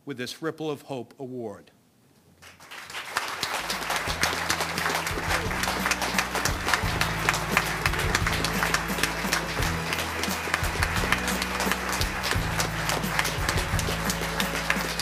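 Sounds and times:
audience applauding: 0:02.4 - 0:15.0
low music: 0:03.5 - 0:15.0.

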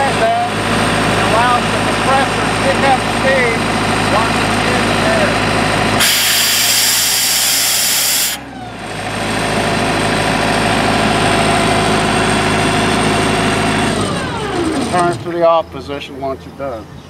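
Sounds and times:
diesel engine running: 0:00.0 - 0:17.0
compressed air hissing from valve: 0:06.0 - 0:08.4.

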